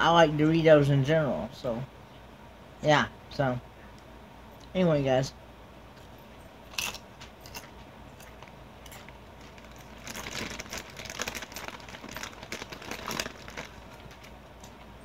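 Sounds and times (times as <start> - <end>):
crackly chewing: 6.0 - 15.0
chip crunching: 6.7 - 14.9.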